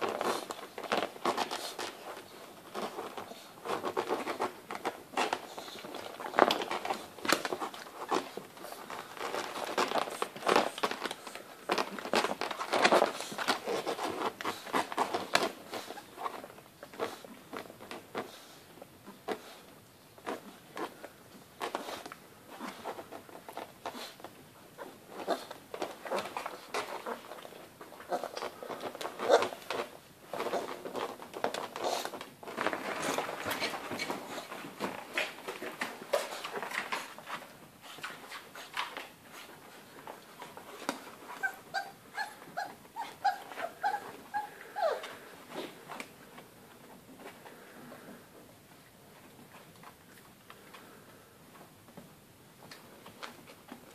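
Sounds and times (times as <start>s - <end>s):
claws clicking and scrabbling: 0.0s - 18.4s
puppies scuffling and play-fighting: 0.0s - 53.9s
puppy high yips: 41.3s - 45.1s
puppies whimpering: 41.4s - 45.3s.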